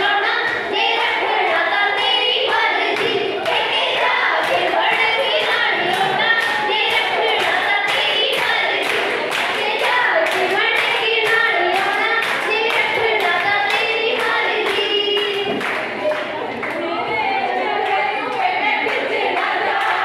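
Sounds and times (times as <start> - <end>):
rhythmic handclaps: 0.0 - 16.9, 17.6 - 20.0
women singing together: 0.0 - 20.0.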